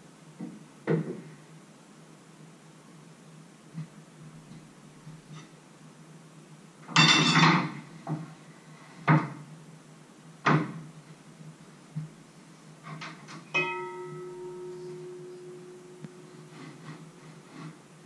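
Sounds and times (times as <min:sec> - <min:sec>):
utensils knocking and clattering: 0:06.9 - 0:07.8
metal utensil striking ringing pot: 0:13.6 - 0:16.2.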